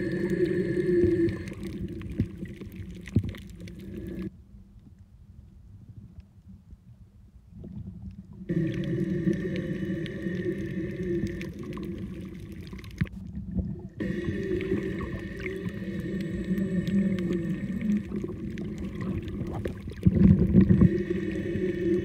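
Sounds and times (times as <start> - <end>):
steady droning hum: 0.0 - 4.3, 8.4 - 12.7, 13.4 - 22.0
watery hiss: 0.0 - 4.3, 8.5 - 13.0, 14.0 - 22.0
low underwater rumble: 0.0 - 22.0.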